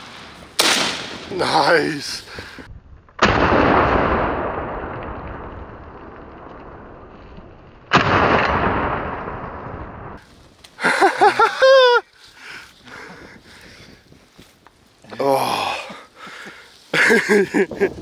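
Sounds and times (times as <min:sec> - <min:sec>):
shotgun blasts with echo: 0:00.6 - 0:01.4, 0:03.2 - 0:05.8, 0:07.9 - 0:10.2.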